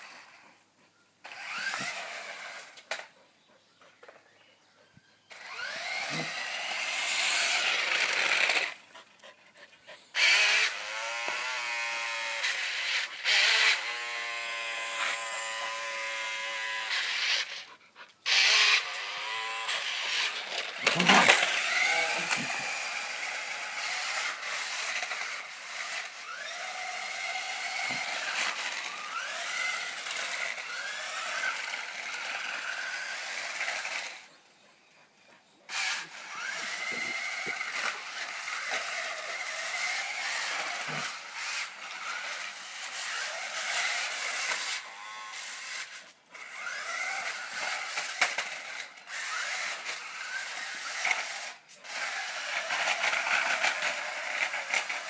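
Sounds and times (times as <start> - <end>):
toy car electric motor whining: 0.0 - 0.6, 1.2 - 3.2, 5.2 - 55.0.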